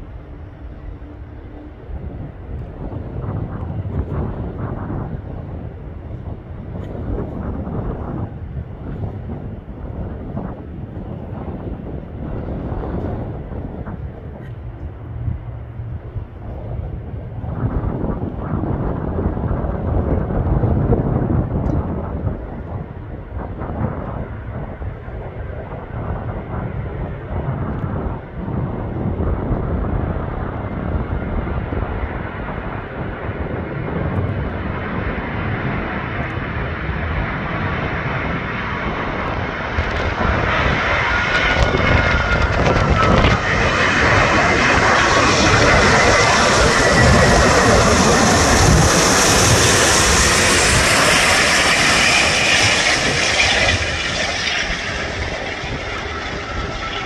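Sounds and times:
jet airliner engines: 0.0 - 57.0
faint whine bending in pitch: 41.0 - 57.0.

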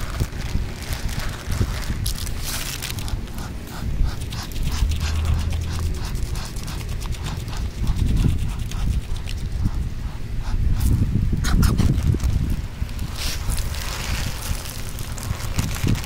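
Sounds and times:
duck bill pecking seed: 0.0 - 16.0
wind rumble on microphone: 0.0 - 16.0.

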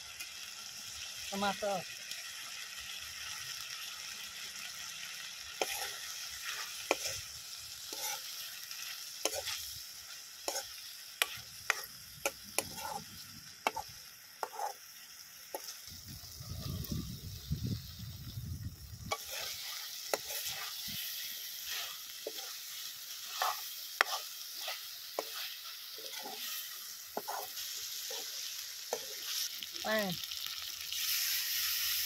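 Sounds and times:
food sizzling in hot oil: 0.0 - 32.0
ladle scraping pan: 5.6 - 7.2, 7.9 - 8.3, 11.2 - 13.0, 13.6 - 14.8, 19.1 - 20.8, 23.2 - 29.4.

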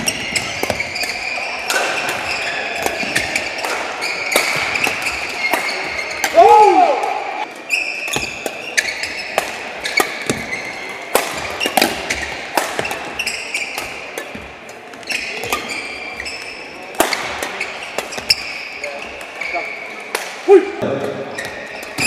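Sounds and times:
shoes squeaking on court floor: 0.0 - 6.4, 7.4 - 20.0, 20.8 - 22.0
racket striking shuttlecock: 0.0 - 14.5, 16.9 - 18.5.

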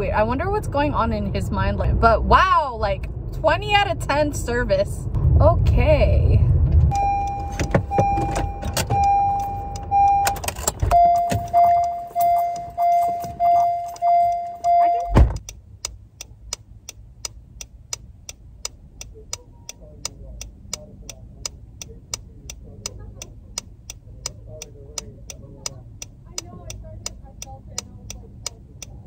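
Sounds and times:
car door shutting: 6.8 - 15.4
car warning chime beeping: 6.9 - 29.0
fast ticking: 15.4 - 29.0.

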